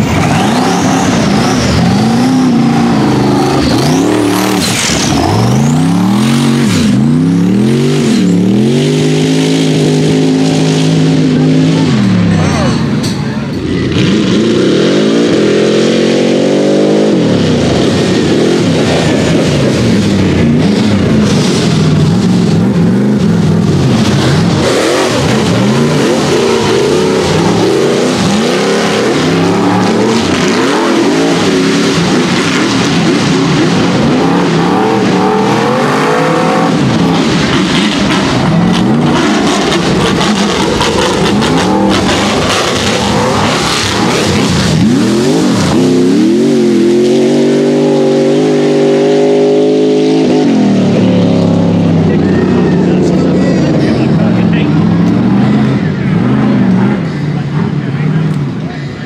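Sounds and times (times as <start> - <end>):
buggy engine revving: 0.0 - 59.0.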